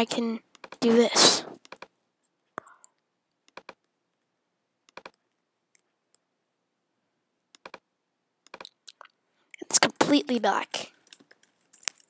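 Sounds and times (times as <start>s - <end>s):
computer mouse clicks: 1.6s - 1.9s, 2.8s - 3.9s, 4.8s - 6.2s, 7.5s - 7.8s, 8.4s - 8.8s.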